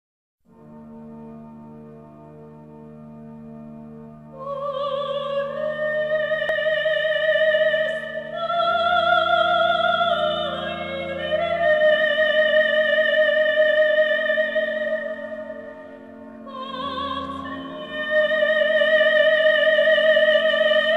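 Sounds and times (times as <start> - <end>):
woman singing soprano: 4.4 - 15.4, 16.5 - 20.9.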